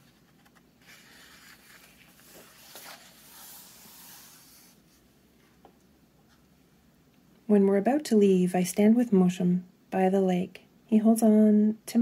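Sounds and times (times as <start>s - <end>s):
paper page turning and rustling: 0.0s - 4.8s.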